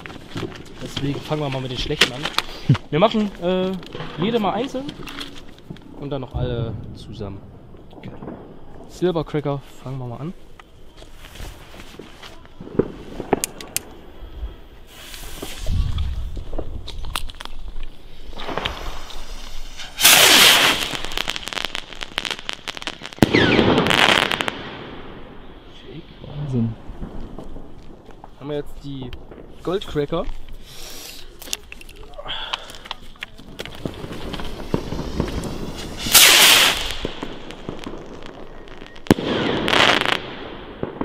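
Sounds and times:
crackling pops: 0:00.0 - 0:14.0, 0:14.9 - 0:24.9, 0:26.4 - 0:41.0
firework rocket hissing: 0:12.7 - 0:16.5, 0:18.0 - 0:25.2, 0:30.6 - 0:31.4, 0:33.7 - 0:41.0.

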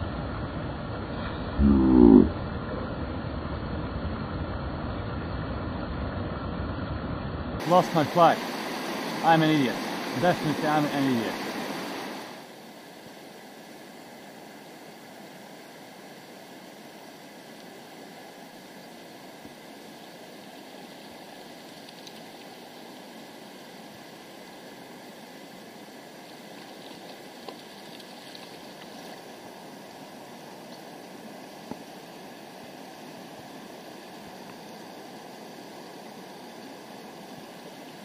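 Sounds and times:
water running over cobbles: 0:26.2 - 0:29.4.

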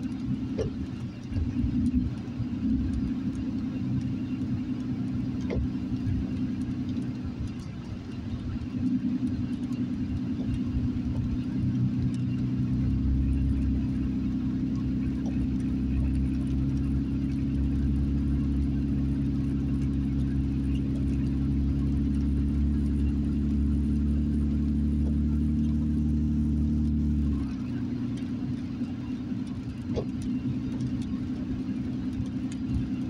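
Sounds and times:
car driving engine and road noise: 0:00.0 - 0:33.0.

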